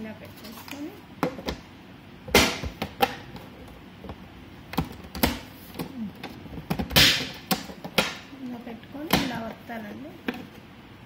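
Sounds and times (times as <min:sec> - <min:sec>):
plastic clicks and knocks: 0:02.6 - 0:08.2.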